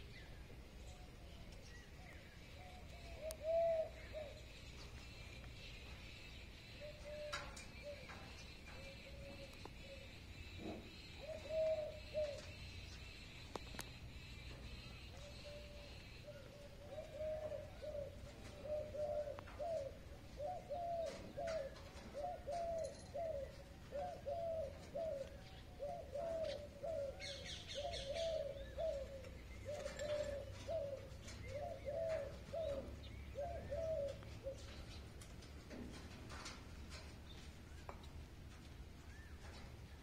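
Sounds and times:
pigeon cooing: 2.5s - 4.6s, 6.7s - 12.7s, 15.1s - 37.1s.

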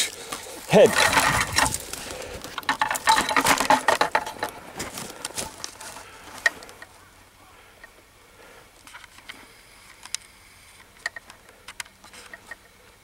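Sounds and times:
dry leaves rustling and crackling: 0.0s - 7.1s.

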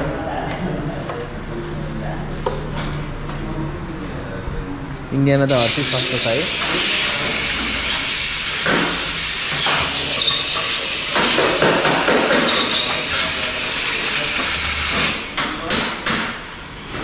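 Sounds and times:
loud steady hiss: 5.5s - 15.3s.

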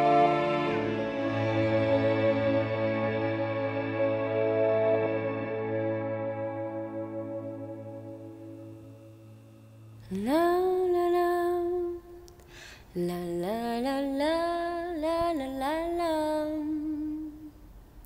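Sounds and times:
person humming a melody: 13.0s - 17.6s.

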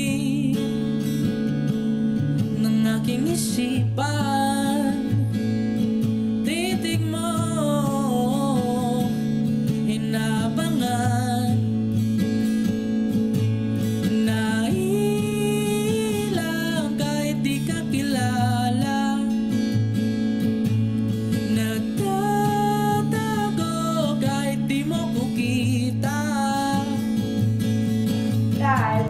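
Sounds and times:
young man singing: 0.0s - 0.8s, 2.5s - 5.4s, 6.4s - 11.7s, 14.0s - 19.6s, 21.3s - 27.3s, 28.6s - 29.0s
strummed acoustic guitar: 0.0s - 29.0s.

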